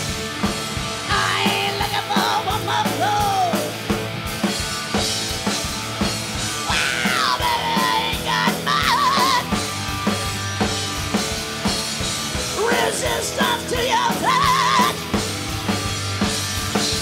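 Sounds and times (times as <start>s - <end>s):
drum kit beat: 0.0s - 17.0s
electric guitar and bass: 0.0s - 17.0s
woman singing wails: 6.7s - 9.5s, 12.6s - 15.0s.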